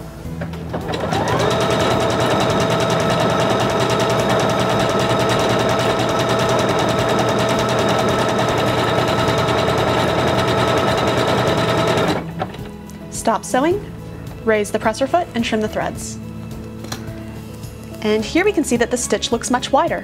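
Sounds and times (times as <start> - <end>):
sewing machine running: 0.7 - 12.6.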